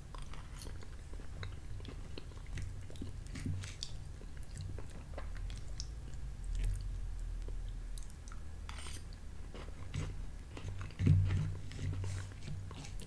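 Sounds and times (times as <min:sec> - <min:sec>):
man chewing with mouth clicks: 0:00.0 - 0:13.0
metal spoon scraping a dish: 0:08.7 - 0:09.0.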